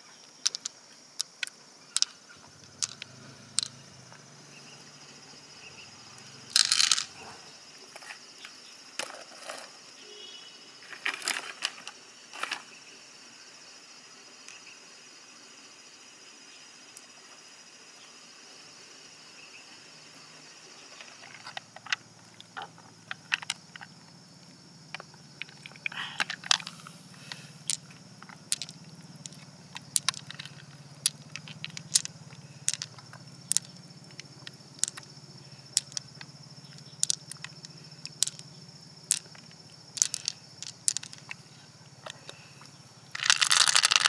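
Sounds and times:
high insect drone: 0.0s - 44.0s
pearls clicking against shell: 0.3s - 3.8s, 6.5s - 7.2s, 21.4s - 23.9s, 24.9s - 41.4s, 43.1s - 44.0s.

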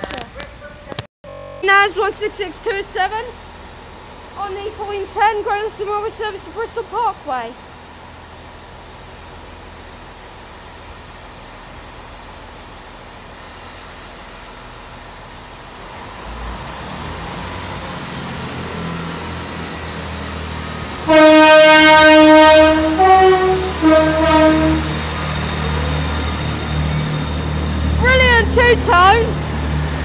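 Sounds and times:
diesel train engines: 0.0s - 30.0s
two-tone train horn: 20.8s - 29.4s.

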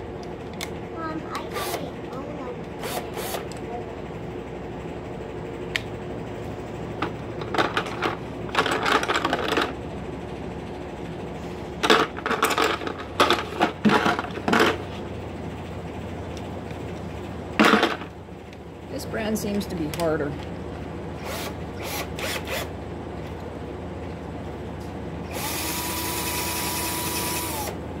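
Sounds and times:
crayons clattering and rattling: 7.4s - 9.8s.

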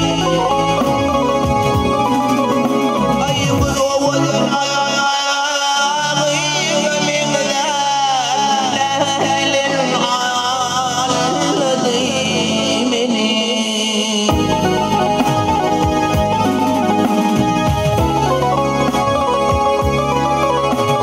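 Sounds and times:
electronic keyboard chords and bass: 0.0s - 21.0s
man singing ornamented melody: 3.2s - 14.8s.

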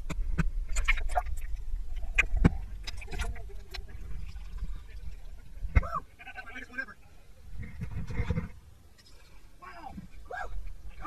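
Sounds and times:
water splashes: 0.6s - 6.9s.

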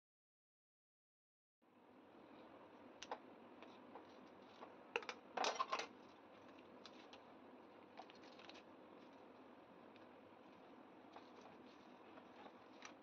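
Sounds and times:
leaf being peeled: 6.0s - 13.0s.

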